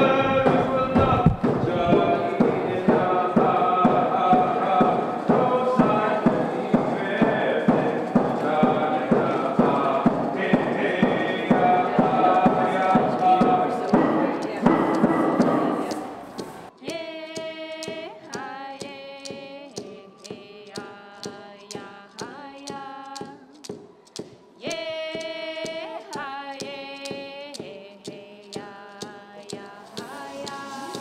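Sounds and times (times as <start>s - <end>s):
sharp clicking beat: 0.0s - 31.0s.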